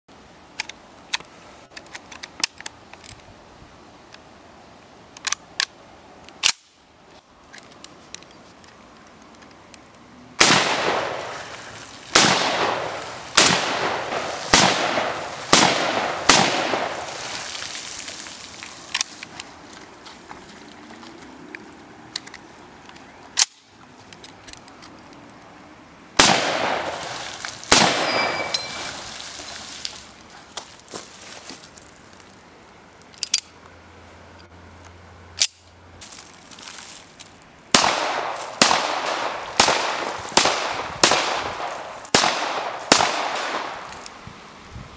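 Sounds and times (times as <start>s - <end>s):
rifle shots with echo: 10.4s - 17.4s, 26.2s - 29.0s, 37.7s - 43.9s
ringing ping of ejected clip: 28.0s - 28.9s.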